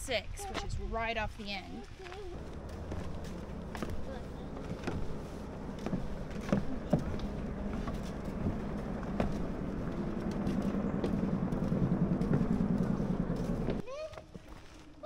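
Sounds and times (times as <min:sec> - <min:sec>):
footsteps on wooden stairs: 0:02.0 - 0:14.8
low rumble: 0:02.2 - 0:13.8.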